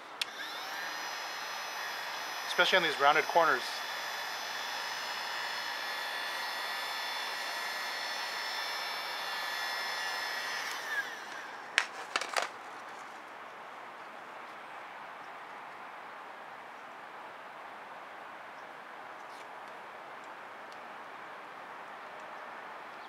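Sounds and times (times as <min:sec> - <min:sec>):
heat gun fan whine: 0:00.0 - 0:12.5.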